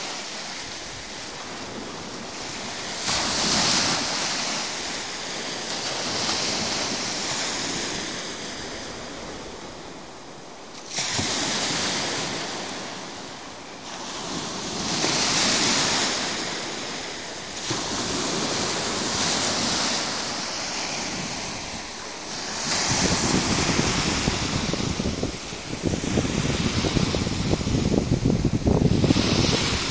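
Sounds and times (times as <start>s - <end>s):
waves washing on sandy beach: 0.0s - 29.9s
wind rumble on microphone: 17.6s - 29.9s.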